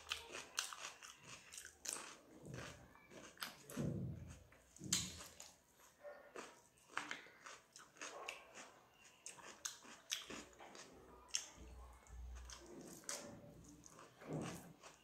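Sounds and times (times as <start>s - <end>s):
wet chewing and lip smacks: 4.9s - 11.6s.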